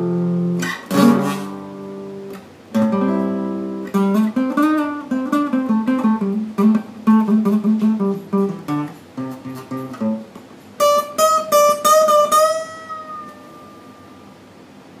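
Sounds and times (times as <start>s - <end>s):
acoustic guitar playing blues: 0.0s - 14.5s.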